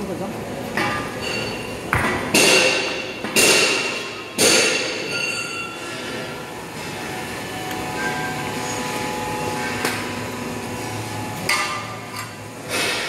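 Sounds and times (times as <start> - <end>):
machine running steadily: 0.0 - 13.0
loud metallic strikes: 0.8 - 6.3.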